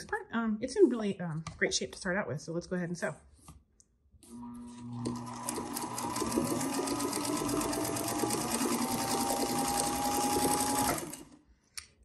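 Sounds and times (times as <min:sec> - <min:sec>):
sewing machine motor whine: 0:04.3 - 0:11.4
sewing machine clatter: 0:05.0 - 0:11.4.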